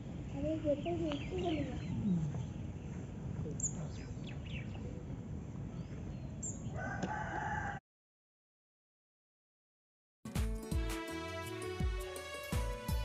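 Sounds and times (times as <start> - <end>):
low outdoor background noise: 0.0 - 7.6.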